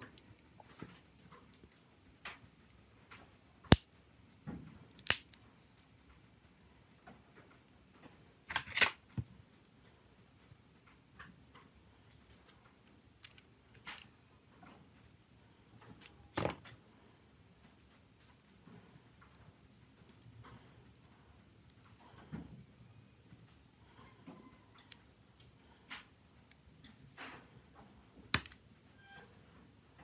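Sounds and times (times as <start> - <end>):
phone parts clicking into place: 28.4 - 28.6.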